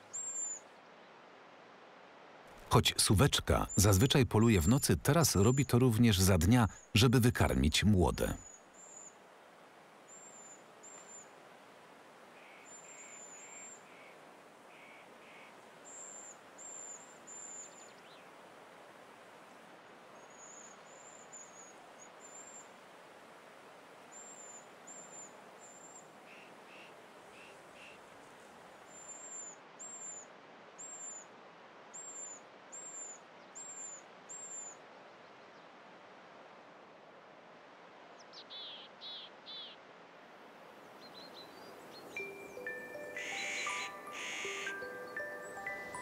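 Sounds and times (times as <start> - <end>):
faint forest hiss: 0.0 - 46.0
owl chicks high-pitched calls: 43.0 - 44.8.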